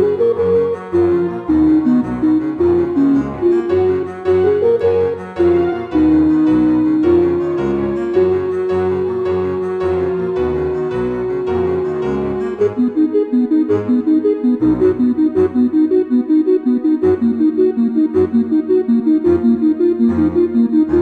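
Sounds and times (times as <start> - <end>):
instrumental background music: 0.0 - 21.0.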